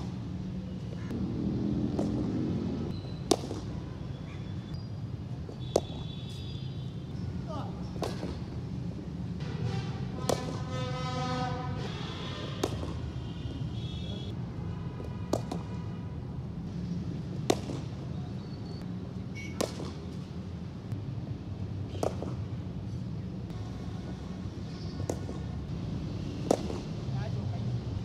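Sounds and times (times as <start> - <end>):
cricket bat striking ball: 3.2 - 3.8, 5.5 - 6.1, 7.9 - 8.5, 10.2 - 10.6, 12.6 - 13.1, 15.3 - 15.7, 17.4 - 18.0, 19.5 - 20.2, 21.9 - 22.4, 25.0 - 25.5, 26.4 - 27.0.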